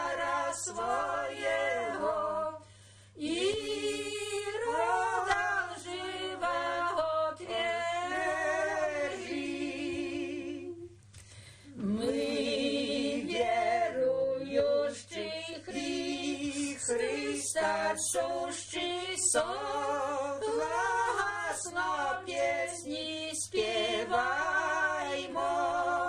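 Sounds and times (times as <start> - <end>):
women's choir singing a cappella: 0.0 - 11.0, 11.7 - 26.0.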